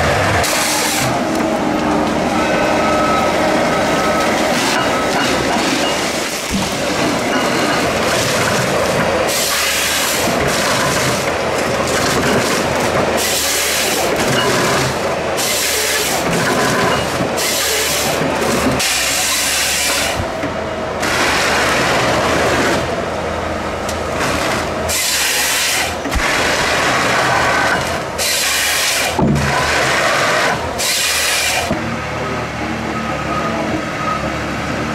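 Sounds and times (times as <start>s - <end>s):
harvester engine and hydraulics: 0.0s - 34.9s
chainsaw bar cutting logs: 0.4s - 1.5s, 9.3s - 20.2s, 24.2s - 31.8s.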